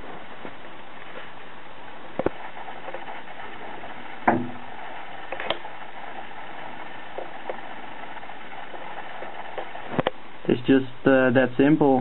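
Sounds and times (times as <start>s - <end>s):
background hiss: 0.0s - 12.0s
short knock: 4.3s - 4.6s.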